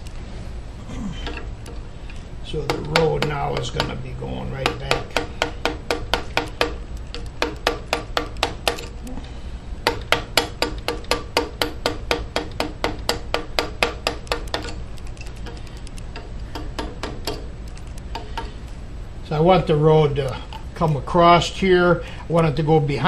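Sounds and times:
mallet tapping chisel into wood: 2.6s - 8.9s, 9.8s - 14.8s, 15.4s - 17.5s.

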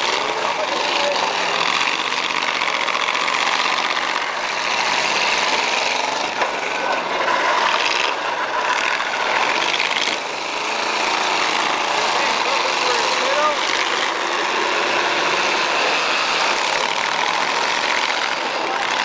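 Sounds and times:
car engines rasping: 0.0s - 19.0s.

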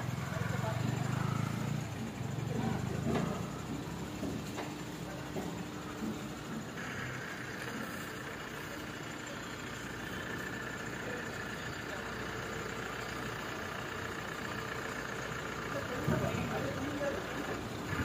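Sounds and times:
diesel engine running: 0.0s - 18.0s
steady high whine: 3.1s - 12.0s.

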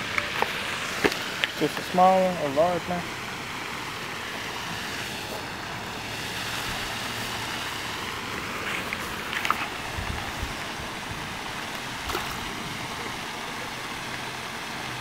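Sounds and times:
water lapping at shore: 0.0s - 15.0s
wind: 0.0s - 15.0s.

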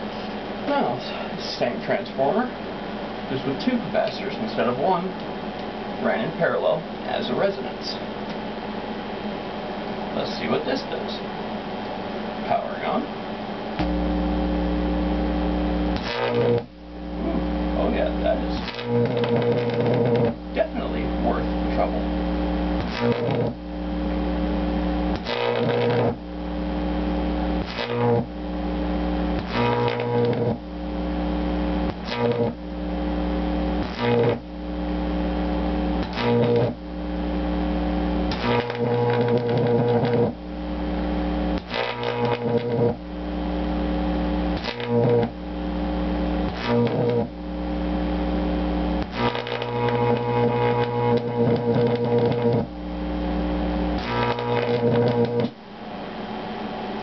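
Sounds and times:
transformer buzzing loudly: 0.0s - 57.0s
electric arc crackle: 12.4s - 56.2s.

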